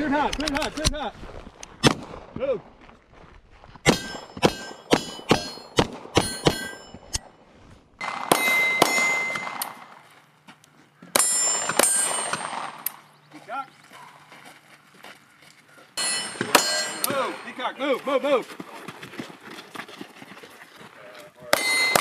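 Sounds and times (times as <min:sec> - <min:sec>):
pistol shots with metallic ring: 0:03.9 - 0:07.3, 0:08.0 - 0:10.0, 0:11.1 - 0:13.0, 0:16.0 - 0:17.6, 0:21.5 - 0:22.0.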